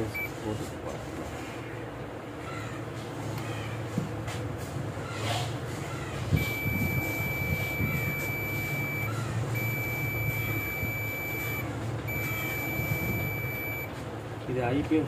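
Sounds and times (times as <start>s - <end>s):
low steady hum: 0.0s - 0.4s, 6.0s - 13.9s
multimeter continuity beeps: 0.1s - 0.4s, 6.4s - 13.9s.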